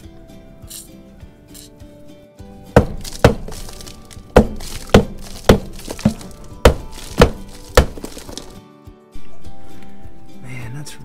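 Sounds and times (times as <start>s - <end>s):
hammer knocking on metal: 2.8s - 3.7s, 4.4s - 8.2s.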